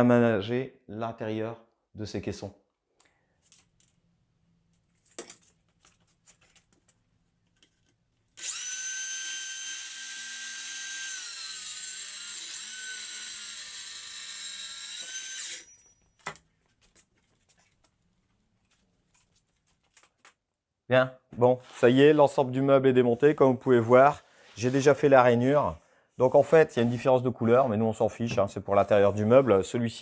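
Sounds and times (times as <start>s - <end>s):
circular saw cutting wood: 8.4s - 15.8s.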